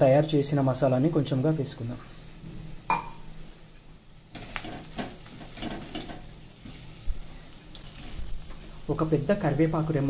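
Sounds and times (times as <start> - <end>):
frying sizzling: 0.0 - 10.0
spoon scraping over pan: 4.3 - 8.7.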